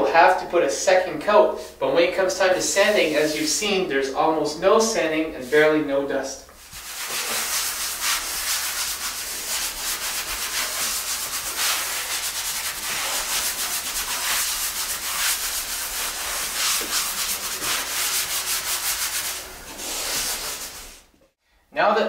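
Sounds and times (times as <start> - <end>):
sanding sponge rubbing drywall: 2.4 - 3.7, 6.5 - 21.1.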